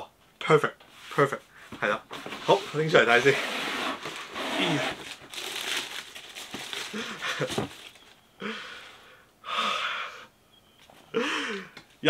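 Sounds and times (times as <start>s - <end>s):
tissue paper and cardboard rustling: 2.1s - 8.1s.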